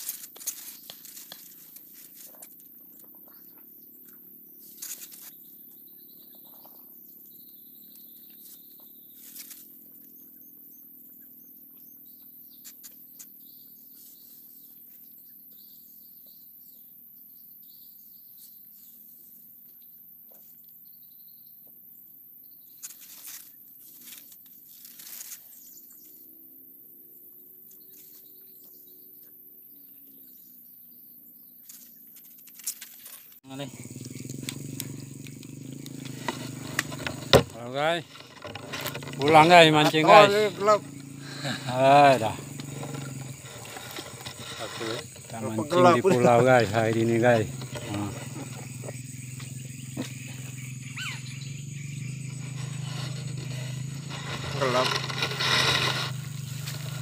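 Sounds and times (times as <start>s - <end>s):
high insect drone: 0.0s - 57.0s
chirp: 0.1s - 57.0s
short rustles and clicks: 31.6s - 33.4s, 34.3s - 41.1s, 42.1s - 46.0s
low hum: 46.3s - 57.0s.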